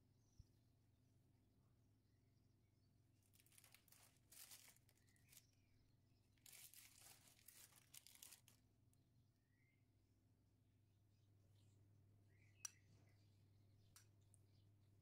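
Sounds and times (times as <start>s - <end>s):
plastic film crinkling and tearing: 3.3s - 5.5s, 6.4s - 8.6s.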